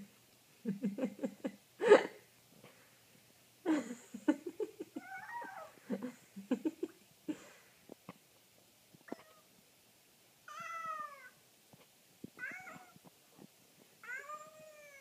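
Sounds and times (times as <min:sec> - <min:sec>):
wavering cat cry: 0:05.0 - 0:05.8, 0:10.5 - 0:11.4, 0:12.4 - 0:13.0, 0:14.0 - 0:15.0.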